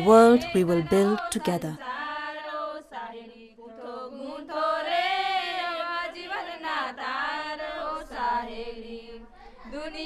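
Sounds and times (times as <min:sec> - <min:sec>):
person singing chant-like song: 0:00.0 - 0:02.0.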